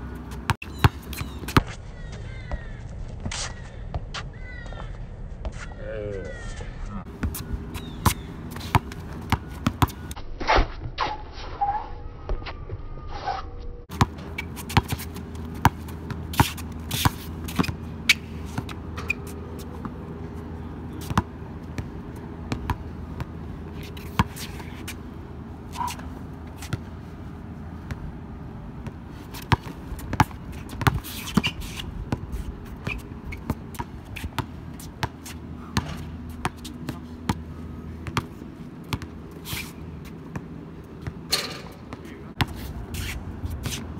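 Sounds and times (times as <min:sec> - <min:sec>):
shoes scuffing on court: 0:00.1 - 0:10.2, 0:13.9 - 0:20.0, 0:22.5 - 0:25.0, 0:25.7 - 0:27.0, 0:38.0 - 0:43.9
basketball bouncing on hard court: 0:08.0 - 0:10.0, 0:22.5 - 0:22.8, 0:28.8 - 0:31.0, 0:32.8 - 0:37.4.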